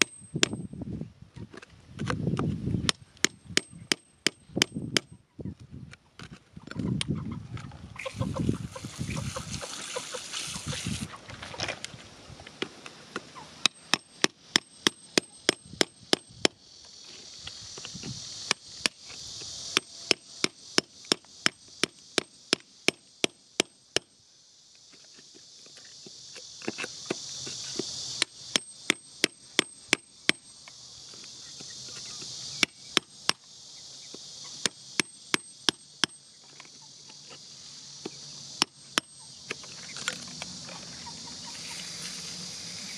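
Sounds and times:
metal tool striking gravelly soil: 0:00.0 - 0:00.7, 0:13.6 - 0:24.1, 0:24.8 - 0:42.9
insects shrilling: 0:06.8 - 0:42.9
dirt brushed by hand: 0:08.0 - 0:13.1, 0:16.7 - 0:20.4, 0:24.8 - 0:28.2, 0:39.5 - 0:42.9.

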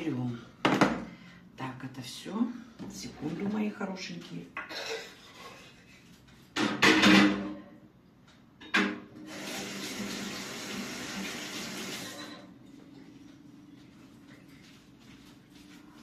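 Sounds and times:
kitchen tap running: 0:09.3 - 0:12.2.

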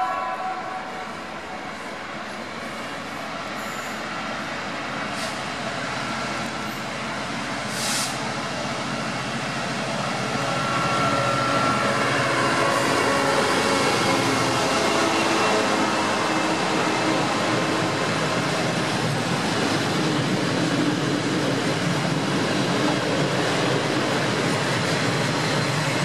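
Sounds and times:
diesel locomotive engine drone: 0:00.0 - 0:26.0
short hiss: 0:07.7 - 0:08.2.

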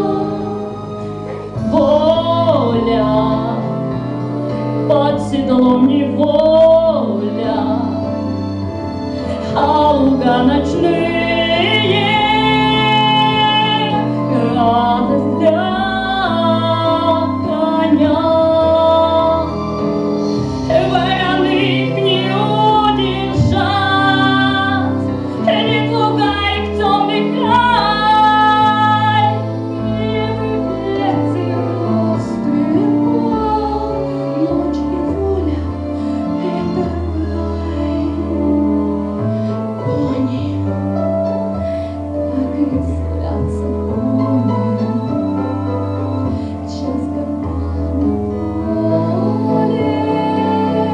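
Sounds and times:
woman singing: 0:00.0 - 0:08.3, 0:09.3 - 0:50.9
instrumental accompaniment: 0:00.0 - 0:50.9.

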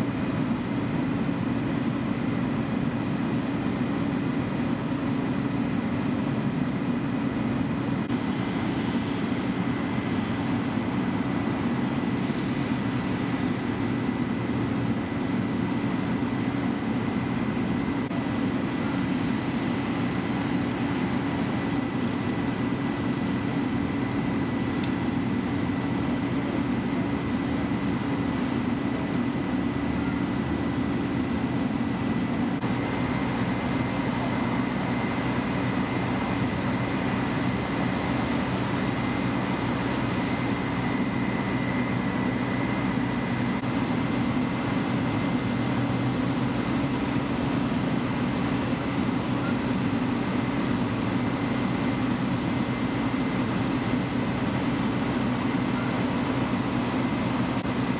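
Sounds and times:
diesel engines droning: 0:00.0 - 0:57.9.

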